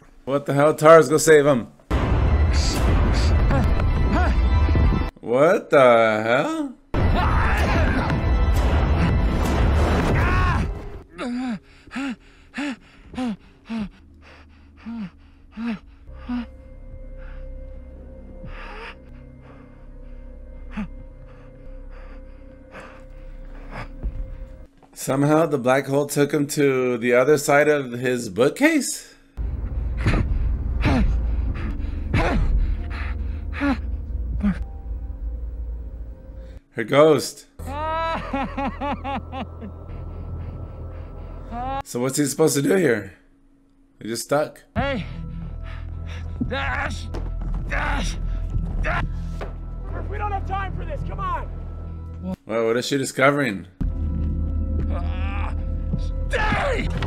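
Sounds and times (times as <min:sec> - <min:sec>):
low musical drone: 0:11.0 - 0:24.7, 0:29.4 - 0:36.6, 0:37.6 - 0:43.7
man gasping and grunting: 0:11.1 - 0:16.6
deep low soundtrack rumble: 0:29.4 - 0:36.6, 0:37.7 - 0:41.8.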